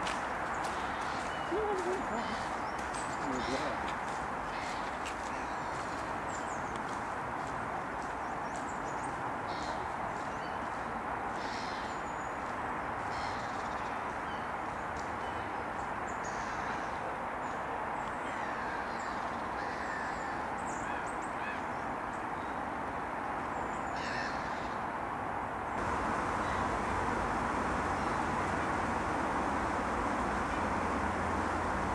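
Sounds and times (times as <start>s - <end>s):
small birds chirping: 0.0s - 7.0s, 25.8s - 31.9s
crow cawing: 19.6s - 21.6s, 24.0s - 24.8s
steady background rush: 25.8s - 31.9s.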